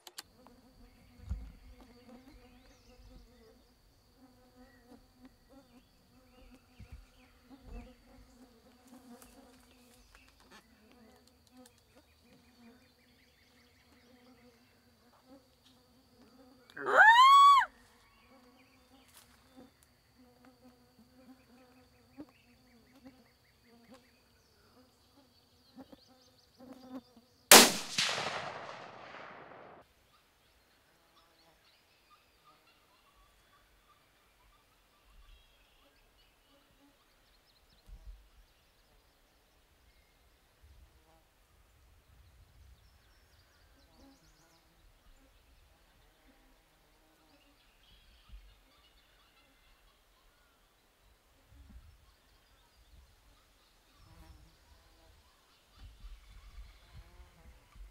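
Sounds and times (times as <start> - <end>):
flies buzzing: 0.2 - 16.9, 18.2 - 27.6
short loud call: 16.8 - 17.7
rifle shot echoing: 27.5 - 29.8.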